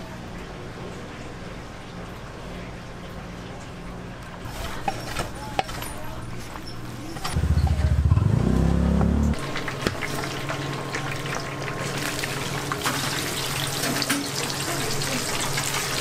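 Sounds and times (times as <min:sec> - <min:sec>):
loud low hum: 0:07.4 - 0:09.4
oil sizzling and crackling: 0:09.4 - 0:16.0.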